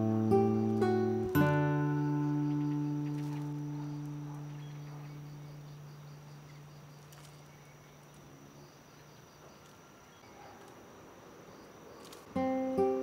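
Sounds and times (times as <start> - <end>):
insects buzzing and chirping: 0.0 - 13.0.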